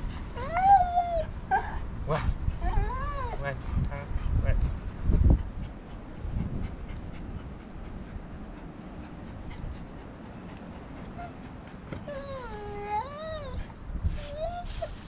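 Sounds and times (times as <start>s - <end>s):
dog whining: 0.4s - 3.4s, 11.1s - 15.0s.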